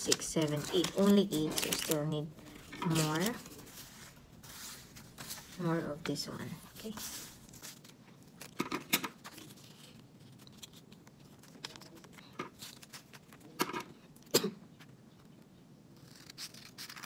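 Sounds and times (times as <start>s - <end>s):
scissors cutting paper: 0.0s - 2.2s, 2.8s - 3.6s, 16.0s - 17.0s
paper rustling and shuffling: 0.0s - 13.6s.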